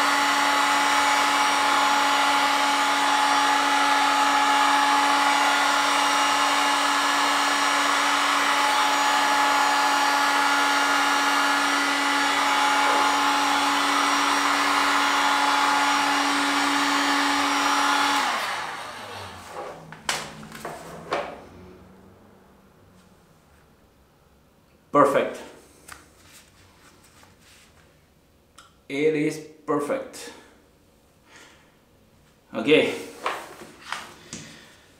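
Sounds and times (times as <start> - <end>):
heat gun blowing: 0.0 - 21.1.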